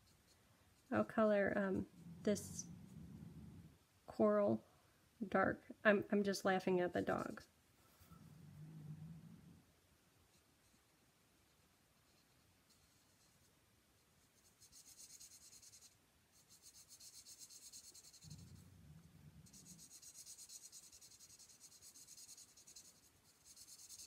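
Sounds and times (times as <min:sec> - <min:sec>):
marker scratching on paper: 0:14.3 - 0:18.7, 0:19.4 - 0:24.0.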